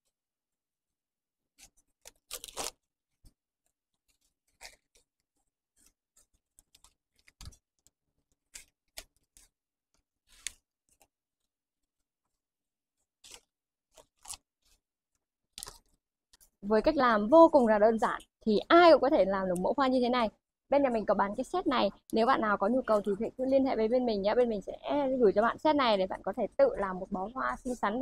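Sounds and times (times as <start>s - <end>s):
paper crackles: 1.6s - 12.4s, 13.0s - 14.9s, 15.5s - 16.6s
wrapping paper rustling: 1.6s - 12.4s, 13.0s - 14.8s.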